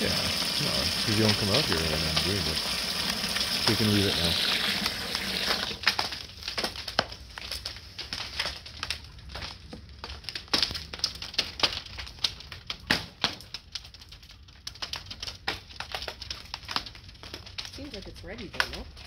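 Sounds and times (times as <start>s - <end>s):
ice cracking and popping: 0.0s - 19.0s.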